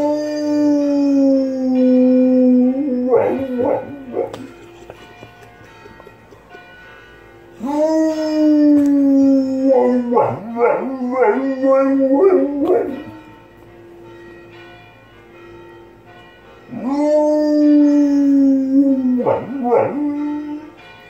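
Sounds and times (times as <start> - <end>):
dog howling: 0.0 - 4.5, 7.6 - 13.2, 16.7 - 20.8
faint church bells ringing: 0.0 - 21.0.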